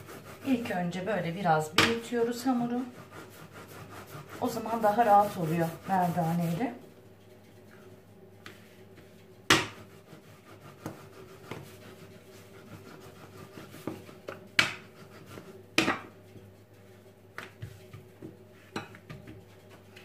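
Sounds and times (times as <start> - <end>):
rolling pin rubbing on dough: 0.0 - 20.0
rolling pin knocking on counter: 9.5 - 9.8, 15.8 - 16.1.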